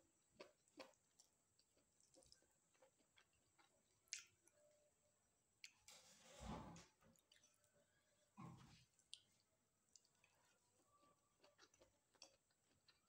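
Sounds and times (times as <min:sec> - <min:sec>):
chewing and lip smacks: 0:00.4 - 0:04.6, 0:08.8 - 0:10.6, 0:11.4 - 0:13.0.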